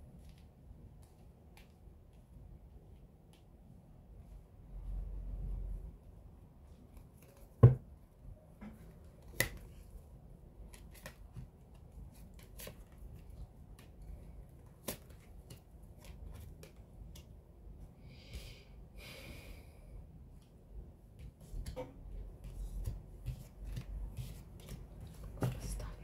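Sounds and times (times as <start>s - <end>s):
thump on a table: 7.6s - 7.8s
cards sliding rustle: 22.4s - 25.6s.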